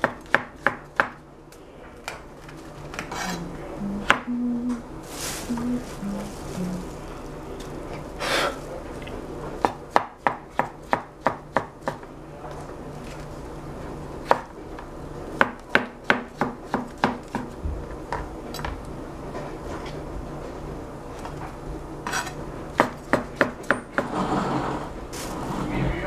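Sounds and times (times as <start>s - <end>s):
knife chopping on cutting board: 0.0s - 1.2s, 9.6s - 12.0s, 15.4s - 18.2s.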